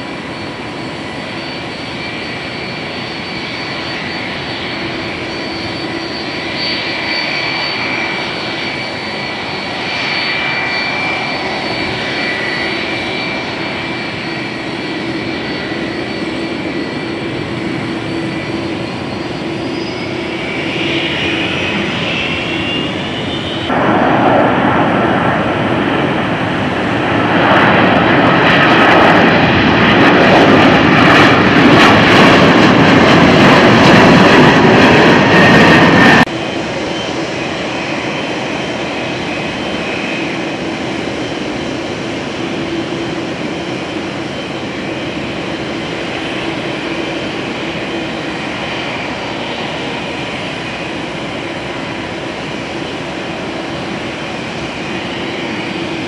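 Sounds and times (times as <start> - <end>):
jet engine roar at takeoff: 0.0 - 56.0
jet engines whining: 0.0 - 56.0.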